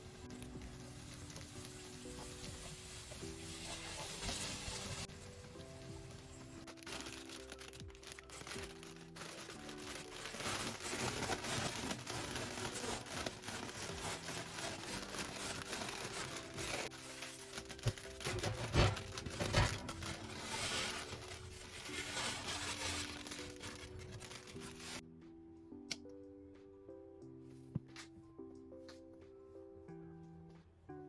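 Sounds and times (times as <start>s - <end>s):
soft background music: 0.0s - 31.0s
foil bag crinkling: 6.0s - 25.0s.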